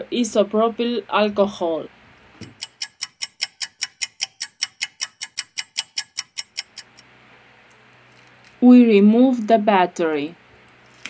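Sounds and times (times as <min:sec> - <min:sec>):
clock ticking: 0:02.4 - 0:07.0.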